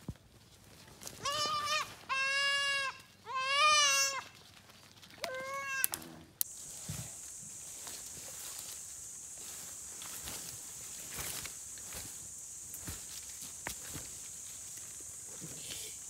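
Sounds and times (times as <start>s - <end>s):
goat bleating: 1.2s - 4.3s, 5.2s - 6.2s
steady high hiss: 6.4s - 16.0s.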